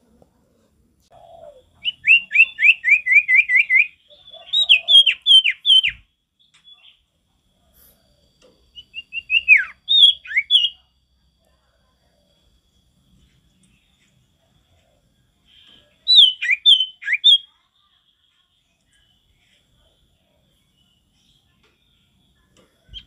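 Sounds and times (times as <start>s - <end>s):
bird whistling song: 1.1s - 7.0s, 8.7s - 10.8s, 15.5s - 17.6s.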